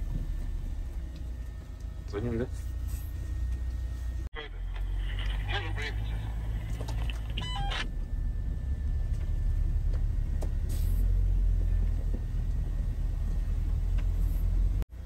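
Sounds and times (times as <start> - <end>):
vehicle engine and tyres on snow: 0.0 - 15.0.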